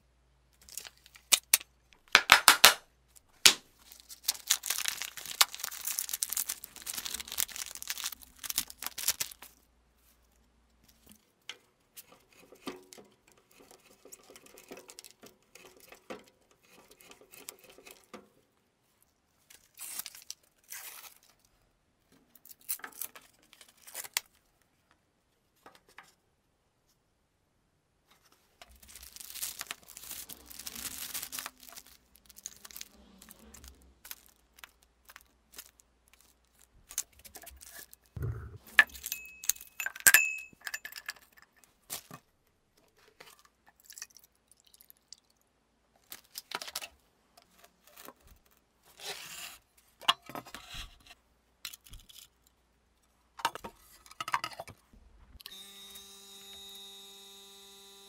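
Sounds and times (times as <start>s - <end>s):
plastic bag crinkling: 3.1s - 9.6s, 28.6s - 38.2s
vacuum pump humming: 55.4s - 58.0s.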